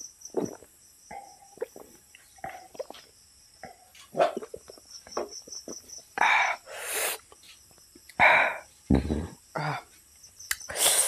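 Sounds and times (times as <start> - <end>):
man gulping a drink: 0.3 - 4.8, 8.9 - 9.8
swallowing: 0.3 - 4.9, 8.1 - 9.9
loud burst of breath: 6.3 - 7.2, 10.7 - 11.0.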